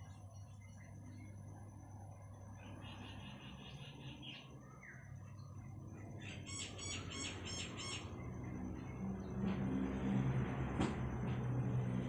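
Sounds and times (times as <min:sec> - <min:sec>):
steady low hum: 0:00.0 - 0:12.0
small bird chirping: 0:02.2 - 0:08.9.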